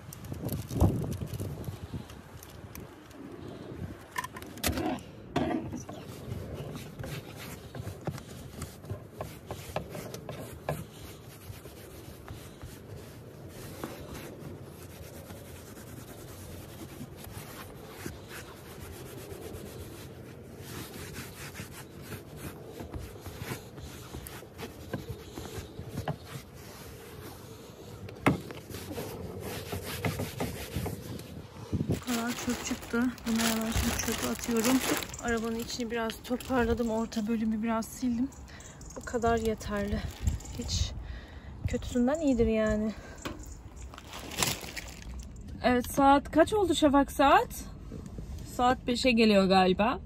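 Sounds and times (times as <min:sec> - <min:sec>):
wipe rubbing leather seat: 0:06.0 - 0:38.2.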